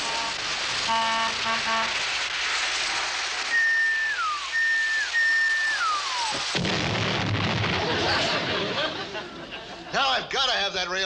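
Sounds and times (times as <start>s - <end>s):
train horn blasts: 0.0s - 2.0s
high sliding train whistles: 0.0s - 2.1s, 2.9s - 6.4s.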